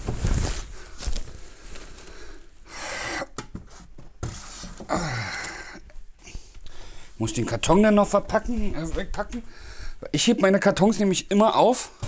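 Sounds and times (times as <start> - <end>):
plastic bag rustling: 0.0 - 2.5
person grunting: 4.9 - 5.8.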